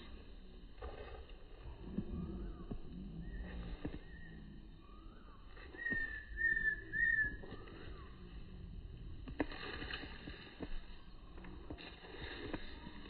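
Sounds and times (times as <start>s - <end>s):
faint gliding whistled note: 2.1s - 8.8s
short whistled notes: 4.0s - 8.0s.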